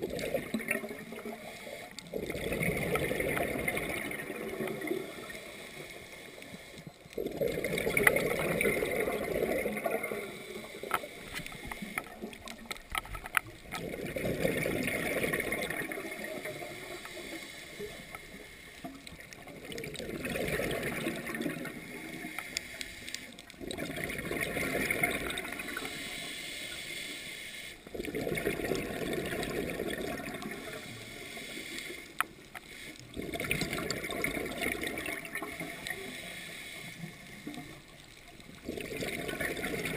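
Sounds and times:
underwater exhaled bubbles: 0.0s - 39.9s.

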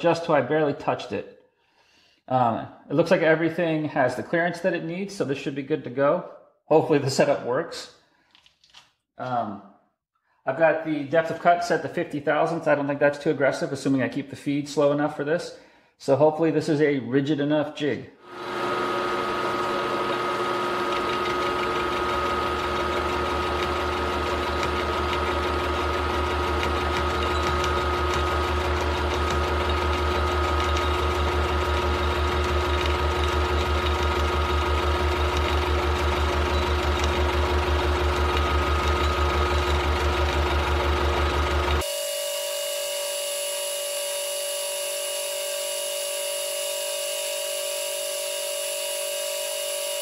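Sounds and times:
milling machine cutting steel: 18.4s - 50.0s.

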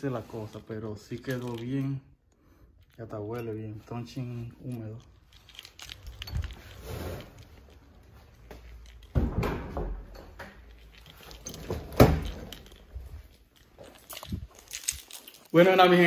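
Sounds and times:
handling clatter: 0.2s - 2.1s, 2.8s - 9.2s, 10.2s - 16.0s.

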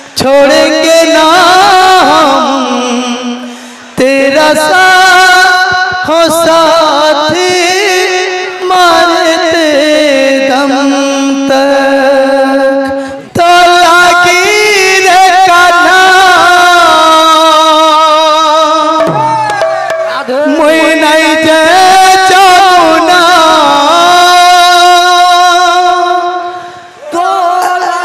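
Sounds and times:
man singing into a microphone: 0.0s - 19.4s, 20.1s - 28.0s
barrel drum: 19.0s - 20.9s.

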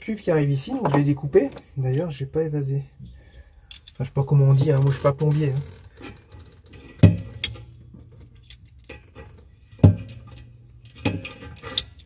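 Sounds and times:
metal scraping and clicking: 4.6s - 12.0s
sharp knocks: 7.0s - 7.4s.

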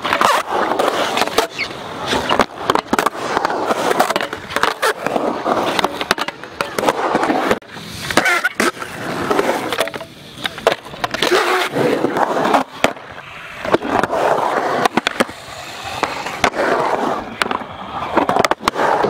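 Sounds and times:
skateboard landing clacks: 0.0s - 11.5s
skateboard wheels rolling on concrete: 0.0s - 19.0s.

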